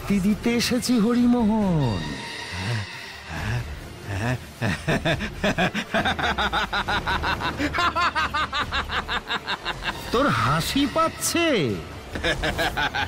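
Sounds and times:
man laughing: 3.4 - 10.4, 12.1 - 13.0.

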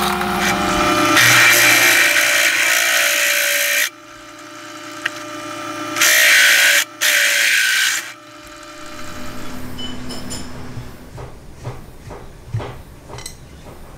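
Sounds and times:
drill spinning free: 0.0 - 11.1
drill bit grinding through steel: 0.0 - 11.2.

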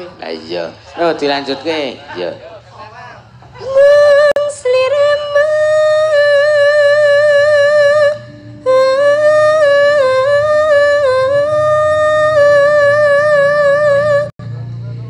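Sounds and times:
low held tone: 3.2 - 15.0.

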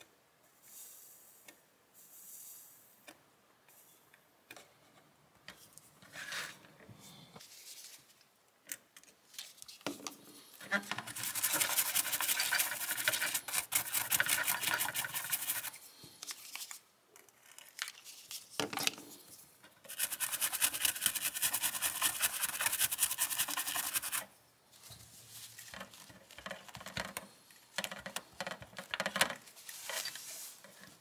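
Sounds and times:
bristle brush scrubbing circuit board: 11.0 - 15.8, 19.9 - 24.3.

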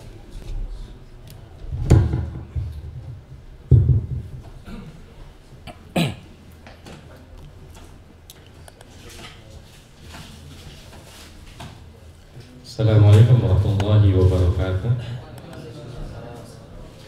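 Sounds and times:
microphone handling bumps: 1.6 - 4.7.

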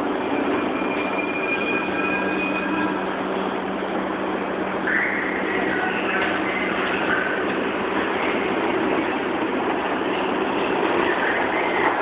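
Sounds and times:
subway train rumbling: 0.0 - 12.0
thin high squeal: 0.7 - 3.0.

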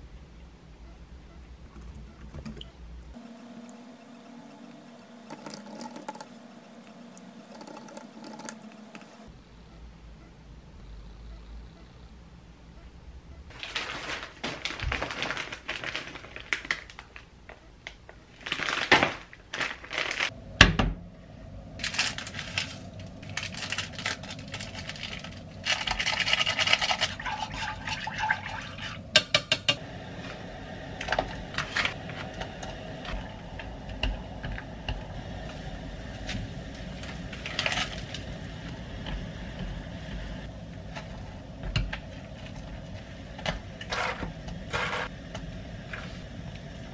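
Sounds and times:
plastic packet rustling: 13.5 - 20.3, 21.8 - 27.2
broth heating in a pot: 20.3 - 46.9
chopsticks stirring: 23.3 - 29.0.

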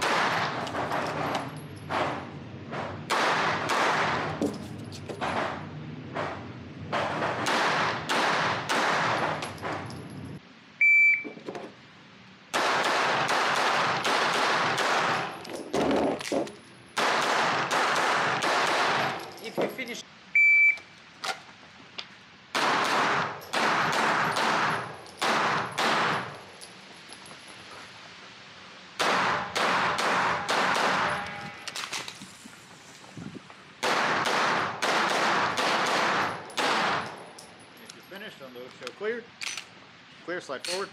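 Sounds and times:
rapid pistol shots with echo: 0.0 - 0.6, 3.1 - 4.4, 7.3 - 9.3, 12.5 - 15.3, 17.0 - 19.2, 22.5 - 26.3, 29.0 - 31.2, 33.8 - 37.0
shot timer beep: 10.8 - 11.3, 20.4 - 20.8
pistol shots echoing indoors: 33.8 - 37.0.

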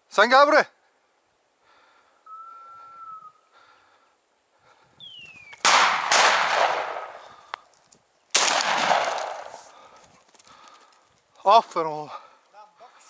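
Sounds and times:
shotgun shots with echo: 5.6 - 7.2, 8.3 - 9.6.

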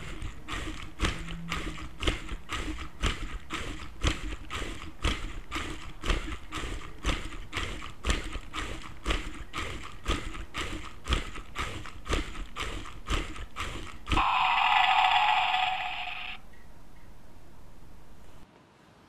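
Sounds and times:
wooden feet clacking on floor: 0.0 - 14.4
electronic dinosaur roar: 13.7 - 16.4.

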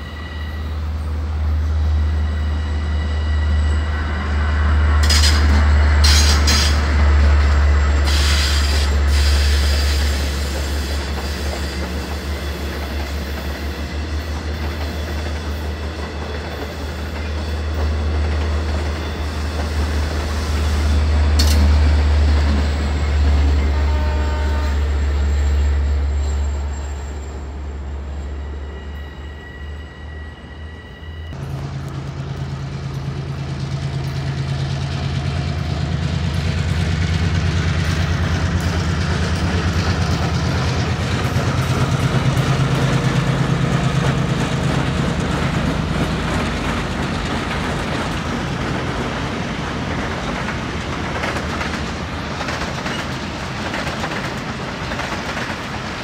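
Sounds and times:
electric train wheels rumbling: 0.0 - 56.0
clacks over rail joints: 36.4 - 56.0.

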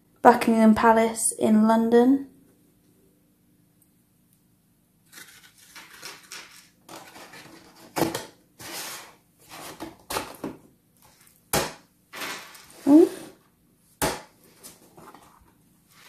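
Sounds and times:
cardboard box rustling and scraping: 5.1 - 10.1.

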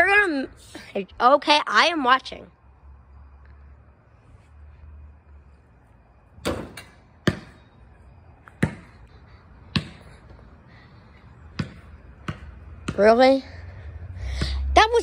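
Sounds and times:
basketball bouncing on concrete: 6.4 - 7.7, 8.4 - 10.4, 11.4 - 13.5.

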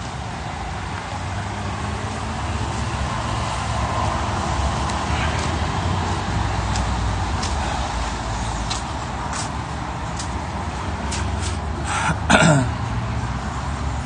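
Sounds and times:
city street traffic: 0.0 - 14.0
person clearing throat: 11.9 - 12.8.

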